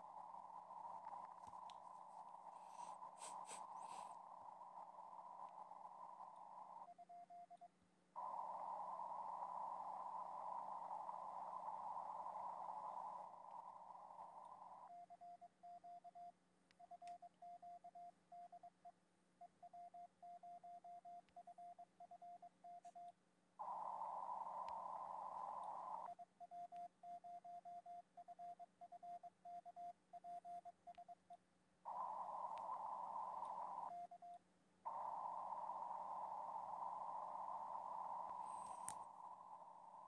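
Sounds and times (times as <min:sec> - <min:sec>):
receiver hiss: 0:00.0 - 0:07.6, 0:08.2 - 0:15.0, 0:23.6 - 0:26.2, 0:31.9 - 0:40.0.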